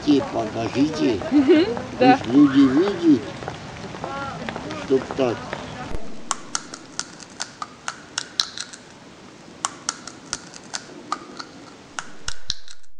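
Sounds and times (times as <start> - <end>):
seeds cracking between teeth: 6.2 - 9.0, 9.6 - 12.9.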